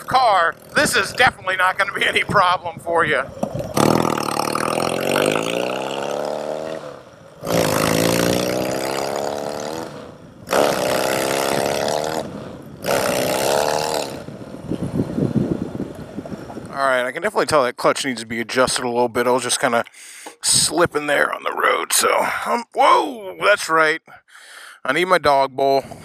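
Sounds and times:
man talking: 0.0s - 3.3s, 16.7s - 24.2s, 24.8s - 26.0s
motorcycle engine accelerating: 0.0s - 16.8s.

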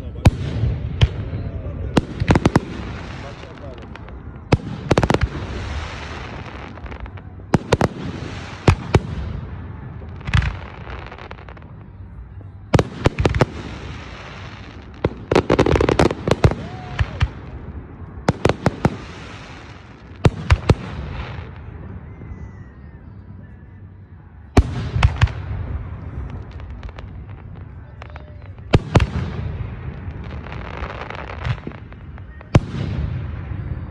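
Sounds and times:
firework hiss: 2.2s - 9.3s, 18.3s - 21.6s.

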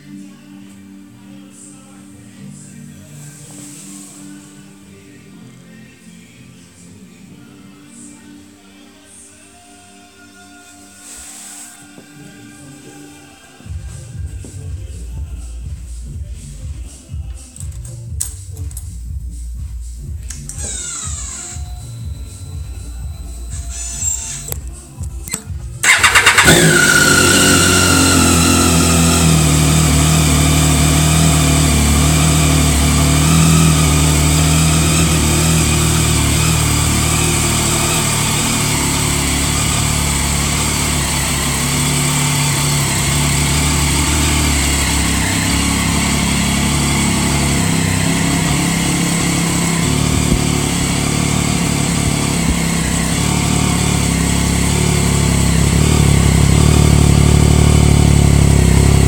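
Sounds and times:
motorcycle engine idling: 13.6s - 59.0s.

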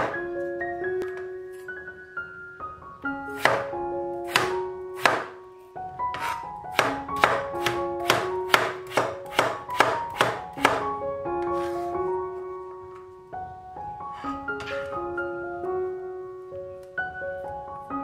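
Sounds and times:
piano music: 0.0s - 18.0s
cleaver chopping on cutting board: 4.3s - 5.3s, 6.2s - 10.8s.

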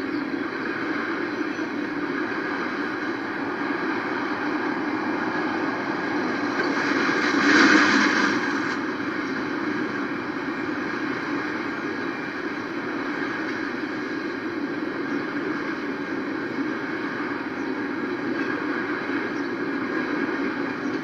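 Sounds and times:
freight train rumble and clatter: 0.0s - 21.0s
road vehicle passing: 2.1s - 11.4s.

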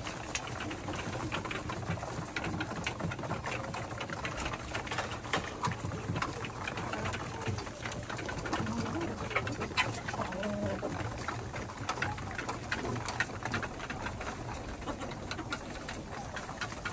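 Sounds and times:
pigeons pecking on hard floor: 0.0s - 16.9s
pigeons cooing: 5.5s - 13.2s.

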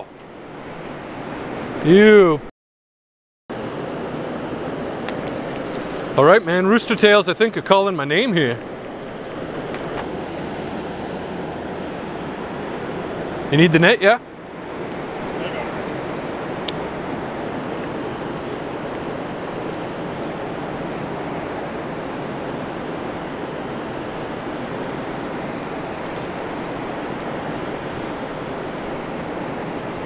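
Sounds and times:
river current rushing: 0.0s - 2.5s, 3.5s - 30.0s.

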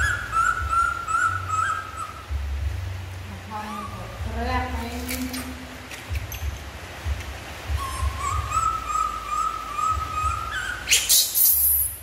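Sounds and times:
monkey calling: 0.0s - 2.3s, 3.4s - 4.3s, 7.6s - 12.0s.

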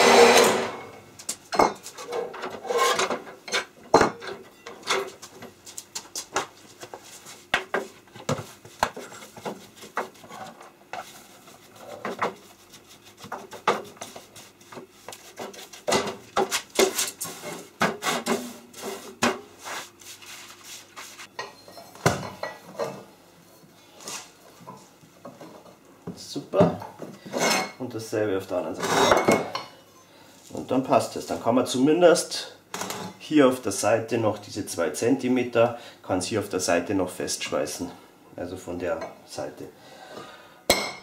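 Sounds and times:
metal scraping: 2.0s - 3.6s.

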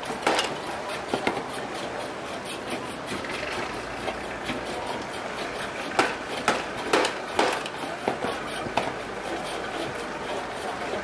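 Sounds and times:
cleaver chopping fish: 5.8s - 9.0s.

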